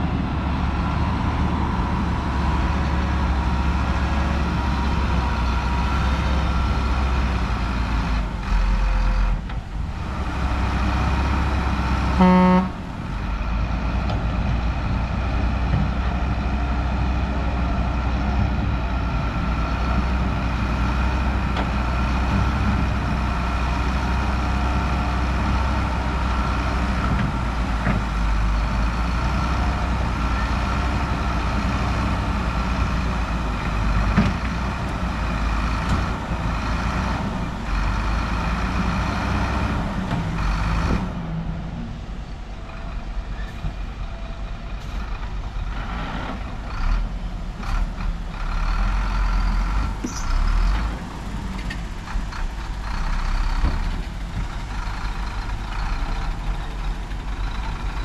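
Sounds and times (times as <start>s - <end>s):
heavy diesel machinery running: 0.0s - 58.0s
short horn toot: 12.2s - 12.8s.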